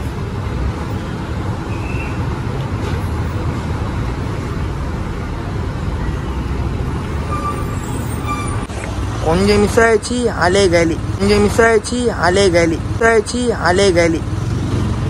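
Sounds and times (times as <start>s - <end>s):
buses and road traffic rumble: 0.0s - 15.0s.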